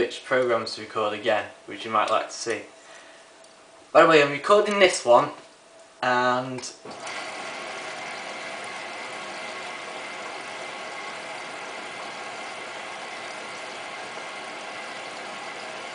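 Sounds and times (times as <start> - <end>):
water hissing into washing machine: 6.9 - 15.9.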